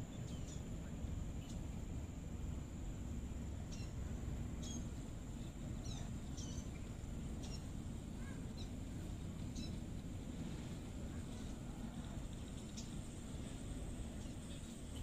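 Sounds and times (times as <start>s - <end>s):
low background rumble: 0.0s - 15.0s
sparrows chirping: 0.1s - 0.7s, 3.6s - 8.8s, 9.5s - 9.8s.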